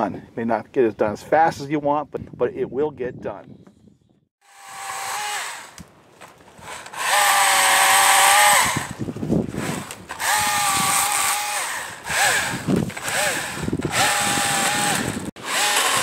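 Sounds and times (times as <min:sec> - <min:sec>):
electric chainsaw motor whining: 0:04.4 - 0:05.9, 0:06.6 - 0:16.0.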